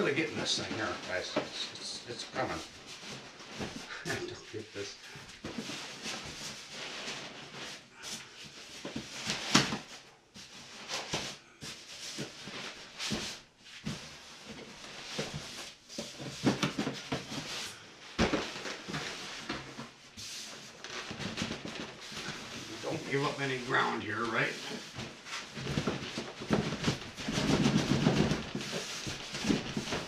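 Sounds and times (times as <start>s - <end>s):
cardboard knocks and bumps: 12.1s - 19.9s, 24.6s - 30.0s.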